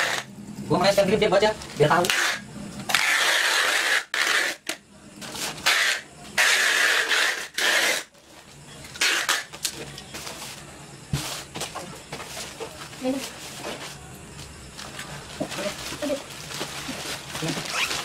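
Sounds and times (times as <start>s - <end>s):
plastic wrapping crinkling: 14.8s - 18.0s.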